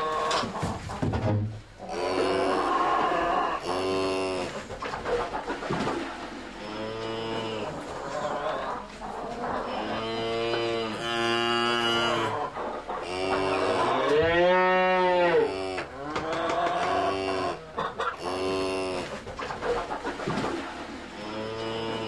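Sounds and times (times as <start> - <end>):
cows mooing: 1.9 - 4.7, 6.5 - 8.6, 9.6 - 12.4, 13.0 - 19.2, 21.1 - 22.0.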